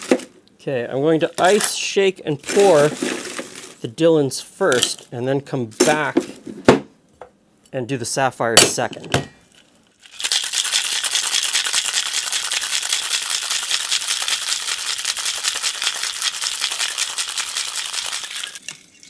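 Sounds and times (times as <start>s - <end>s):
ice rattling in cocktail shaker: 10.0s - 19.0s.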